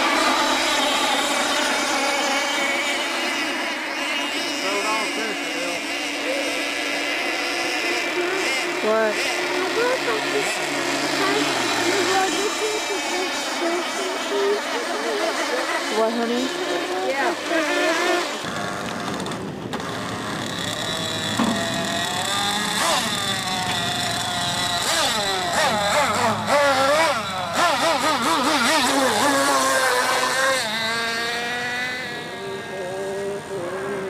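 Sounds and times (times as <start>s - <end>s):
model boat engines whining: 0.0s - 34.0s.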